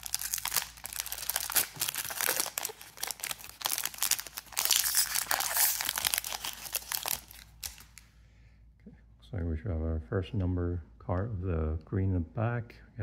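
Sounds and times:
foil wrapper tearing: 0:00.0 - 0:08.0.

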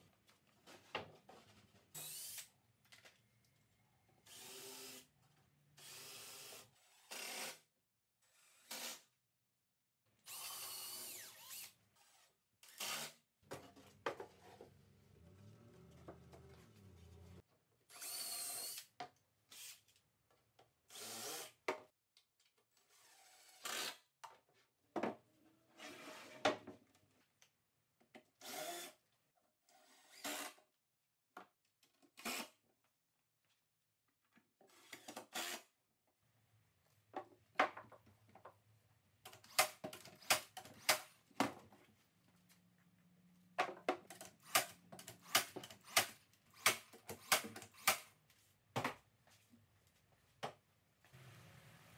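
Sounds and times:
cordless drill driving screws: 0:02.0 - 0:02.5, 0:04.2 - 0:05.1, 0:05.8 - 0:07.6, 0:10.3 - 0:13.2, 0:17.9 - 0:18.9, 0:28.4 - 0:28.9, 0:29.8 - 0:30.6, 0:34.7 - 0:35.7.

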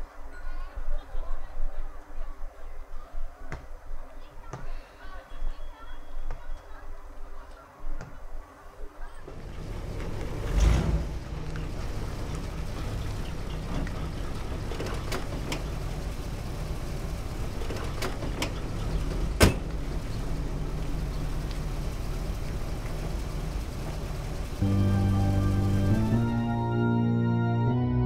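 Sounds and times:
car engine running: 0:09.3 - 0:26.6.

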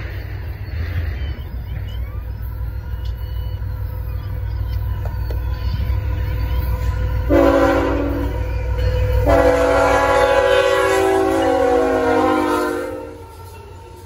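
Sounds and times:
train rumbling past: 0:00.0 - 0:14.0
locomotive air horn chord: 0:07.0 - 0:13.5.

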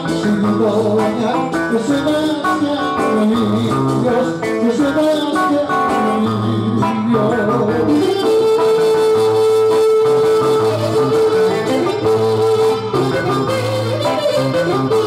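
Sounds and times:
folk dance music with plucked strings: 0:05.7 - 0:15.0.

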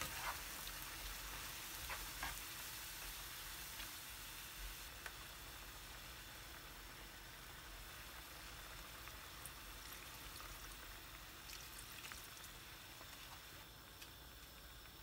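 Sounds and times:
sauce bubbling in a pan: 0:00.0 - 0:15.0
milk pouring into a pan: 0:09.3 - 0:13.6.

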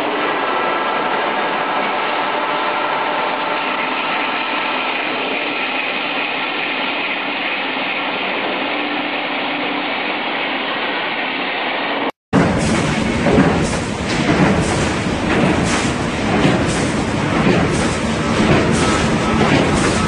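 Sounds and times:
machine whirring: 0:12.4 - 0:20.0.

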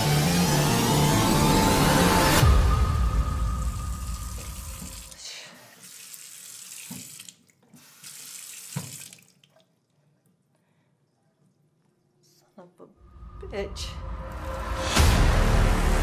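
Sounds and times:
loud low boom: 0:02.4 - 0:05.0
faucet running into a sink: 0:04.2 - 0:09.6.

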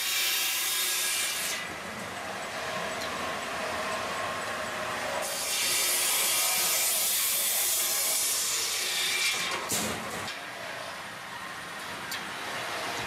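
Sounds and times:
saw cutting wood: 0:00.0 - 0:01.7, 0:04.6 - 0:10.4.

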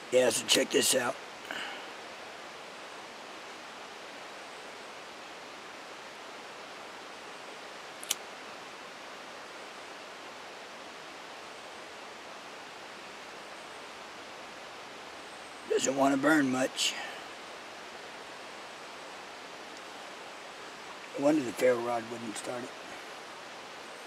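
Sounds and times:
creek rushing: 0:00.0 - 0:24.0
sharp click: 0:08.0 - 0:08.2.

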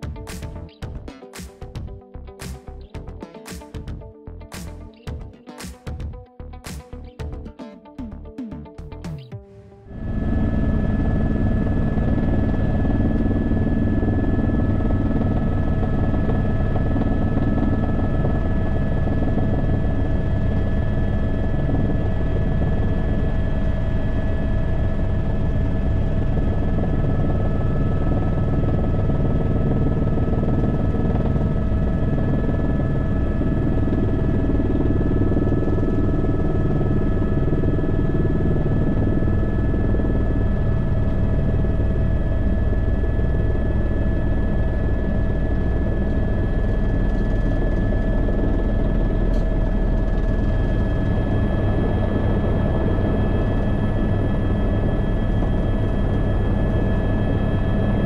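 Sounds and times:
constant whine: 0:00.0 - 0:58.0
helicopter rotor and engine: 0:09.9 - 0:58.0.

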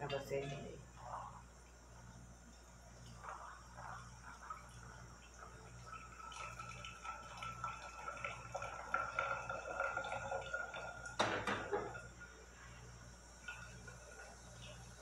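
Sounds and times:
coffee trickling into thermos: 0:03.1 - 0:12.1
pan clanking on stove: 0:11.2 - 0:12.1.

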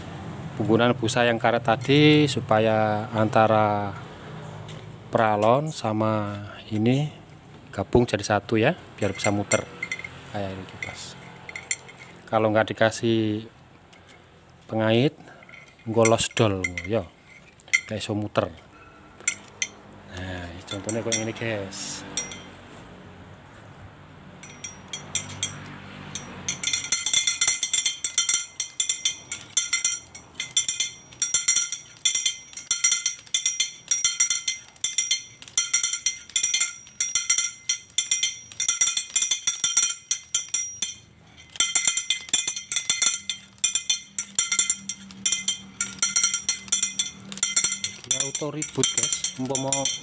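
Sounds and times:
windmill metallic clinking: 0:09.0 - 0:12.3, 0:15.3 - 0:19.8, 0:20.6 - 0:22.6, 0:24.4 - 0:50.0.

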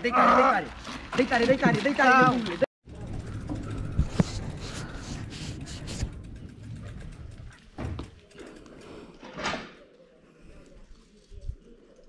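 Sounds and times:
low rumble: 0:02.9 - 0:07.9
loud rub: 0:03.9 - 0:06.2.

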